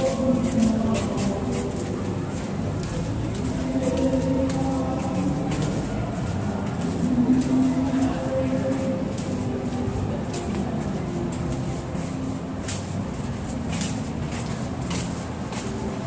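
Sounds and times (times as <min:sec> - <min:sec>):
footsteps on concrete: 0:00.0 - 0:16.0.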